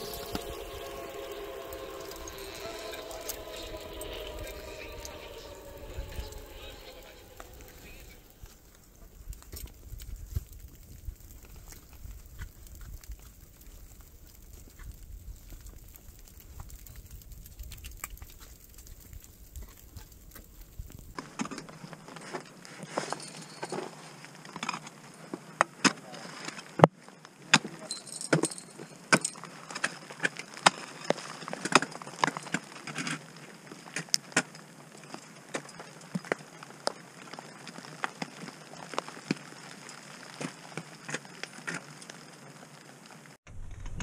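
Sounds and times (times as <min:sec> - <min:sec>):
climbing gear clinking: 0:22.9 - 0:24.9.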